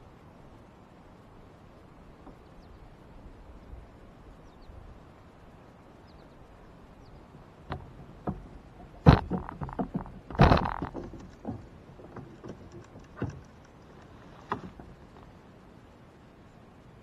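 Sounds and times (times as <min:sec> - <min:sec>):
open water ambience: 0:00.0 - 0:17.0
faint bird chirps: 0:06.0 - 0:07.3
sharp knocks on kayak: 0:07.6 - 0:13.5, 0:14.4 - 0:15.0.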